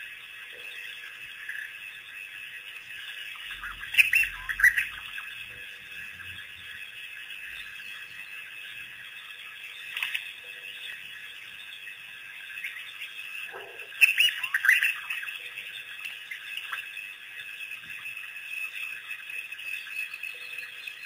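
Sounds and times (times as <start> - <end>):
wild dogs twittering calls: 3.4 - 7.8, 12.0 - 17.0.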